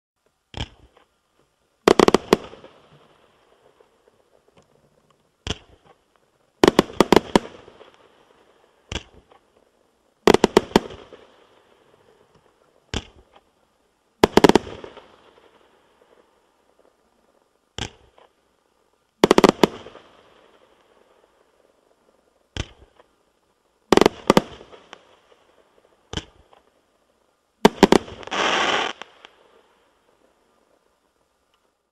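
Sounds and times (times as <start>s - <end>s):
firework crackle: 0.5s - 4.6s, 5.3s - 13.5s, 14.2s - 31.9s
firework bangs: 1.8s - 3.2s, 6.6s - 8.0s, 8.8s - 9.4s, 10.2s - 11.6s, 14.2s - 15.5s, 19.2s - 20.2s, 23.9s - 25.0s, 27.6s - 29.4s.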